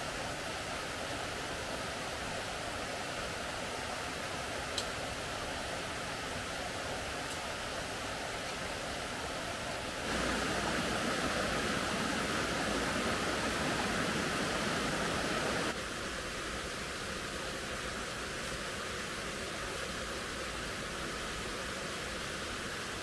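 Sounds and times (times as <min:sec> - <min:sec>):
forest stream rushing: 0:00.0 - 0:23.0.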